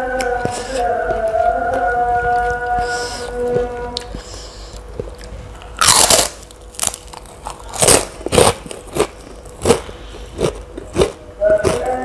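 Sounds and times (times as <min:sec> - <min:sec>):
crunching crisp cracker: 0:05.1 - 0:11.9.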